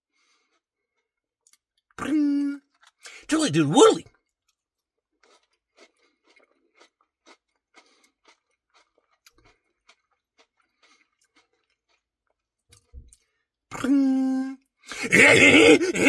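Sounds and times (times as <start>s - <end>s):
chewing with soft wet clicks: 0.1s - 2.0s, 2.6s - 3.2s, 4.0s - 13.8s.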